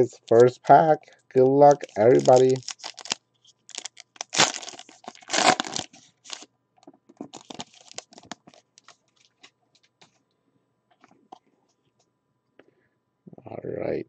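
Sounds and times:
foil wrapper crinkling: 1.6 - 6.5, 7.2 - 10.1
foil wrapper ripping: 1.7 - 6.5, 7.3 - 9.3.

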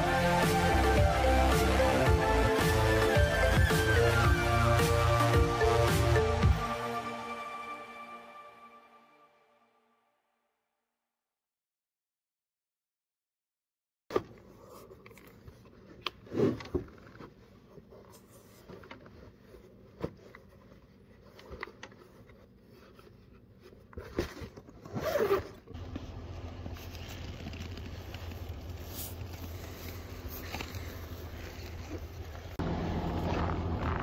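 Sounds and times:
zippers being pulled: 24.0 - 25.8
low outdoor rumble: 25.8 - 34.0.

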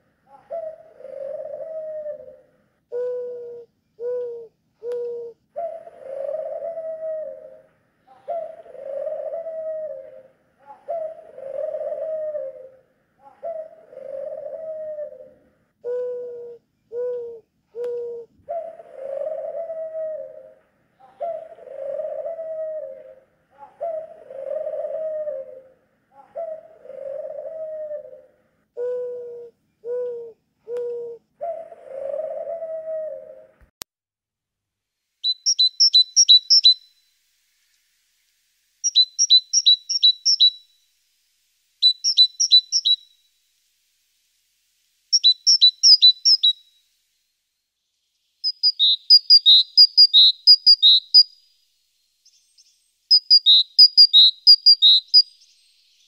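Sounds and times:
pigeon cooing: 0.0 - 33.6.

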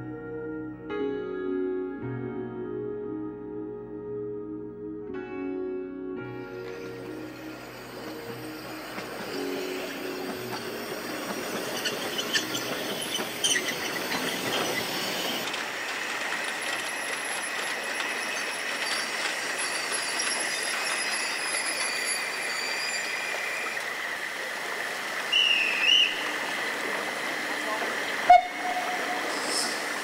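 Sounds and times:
steam locomotive rushing through snow: 6.7 - 30.0
high squeal of wheels: 9.3 - 15.4, 16.7 - 23.9.

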